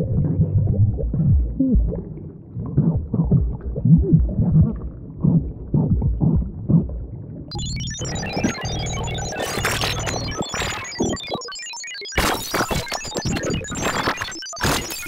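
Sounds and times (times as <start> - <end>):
muffled sound effect with bending pitch: 0.0 - 6.9, 7.5 - 11.4.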